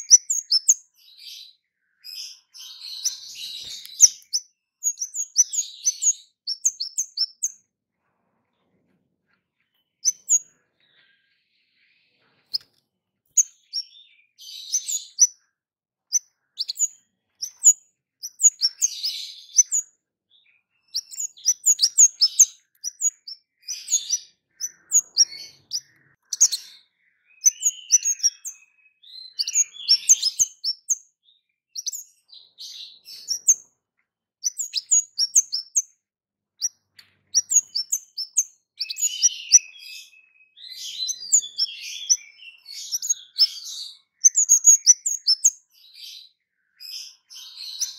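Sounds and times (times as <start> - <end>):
songbird chirping: 0.0 - 47.9.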